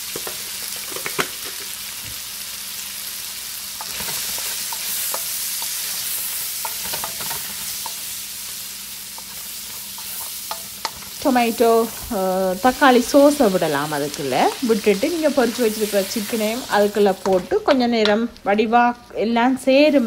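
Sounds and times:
vegetables sizzling in oil: 0.0s - 20.0s
spatula scraping and tapping pan: 3.8s - 8.1s, 9.1s - 12.1s, 17.1s - 18.3s.

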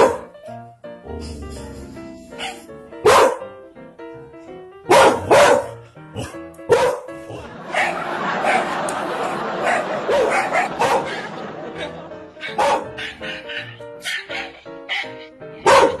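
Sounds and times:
dog barking: 0.0s - 0.3s, 2.4s - 3.5s, 4.9s - 16.0s
background music with melody: 0.0s - 16.0s.

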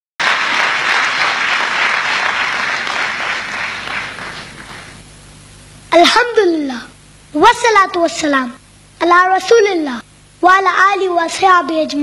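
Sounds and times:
large audience applauding: 0.2s - 5.0s.

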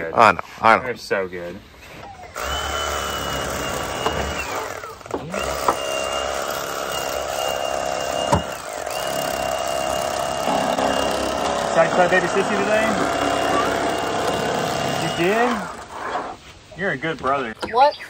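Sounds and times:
electric knife whining: 2.1s - 16.4s.

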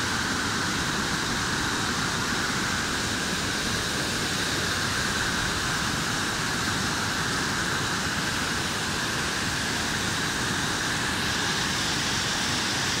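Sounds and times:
white water pouring over rocks: 0.0s - 13.0s.

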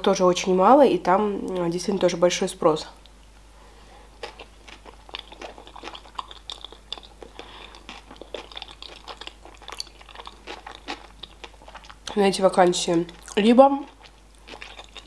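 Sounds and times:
chewing with wet clicks: 4.2s - 12.2s, 12.9s - 15.0s.

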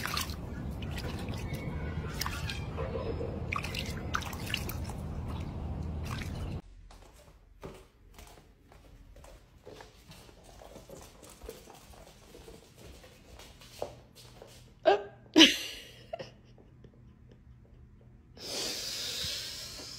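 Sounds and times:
water dripping and splashing: 0.0s - 2.8s, 3.4s - 6.6s
outdoor background noise: 0.0s - 19.9s.

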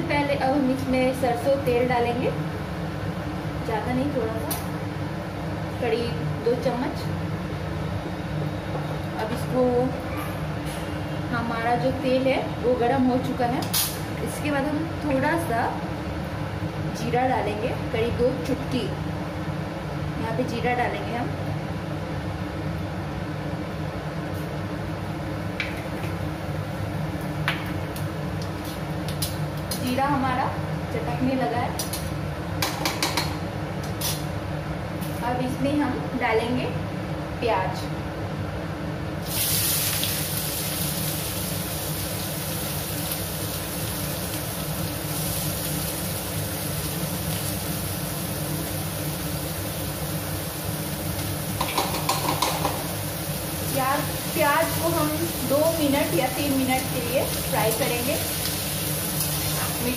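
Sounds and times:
seeds sizzling in hot oil: 39.2s - 59.9s.

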